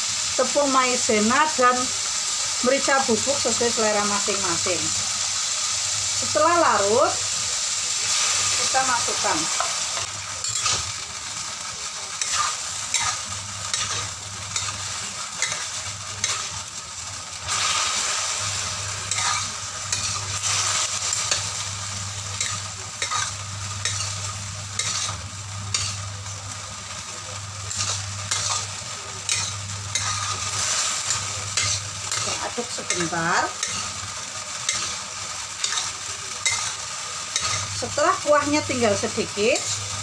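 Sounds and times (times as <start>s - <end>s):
vegetables sizzling in a wok: 0.0s - 40.0s
metal spatula scraping a pan: 8.1s - 11.0s, 12.2s - 16.6s, 17.5s - 21.6s, 22.4s - 24.2s, 24.8s - 26.0s, 27.7s - 34.0s, 35.6s - 37.7s.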